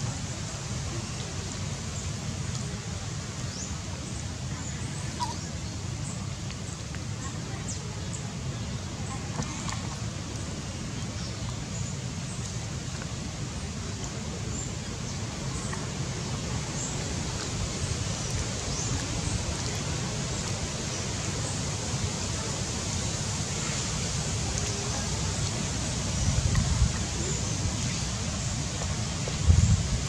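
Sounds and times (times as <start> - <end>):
outdoor background hiss: 0.0 - 30.0
wind rumble on microphone: 23.9 - 30.0.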